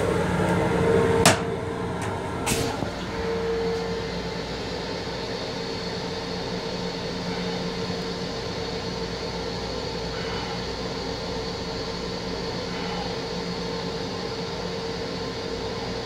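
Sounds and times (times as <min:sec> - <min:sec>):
railcar steady hum: 0:00.0 - 0:16.0.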